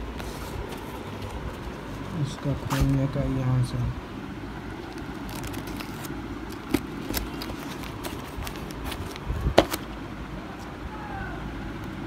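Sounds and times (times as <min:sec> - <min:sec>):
cardboard scraping and crackling: 0:00.0 - 0:02.0, 0:04.8 - 0:09.9
low background rumble: 0:00.0 - 0:12.0.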